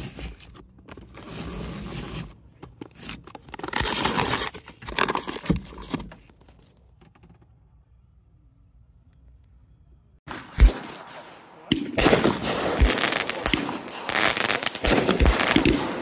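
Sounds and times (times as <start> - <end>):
paper wrapper tearing: 2.9 - 6.1.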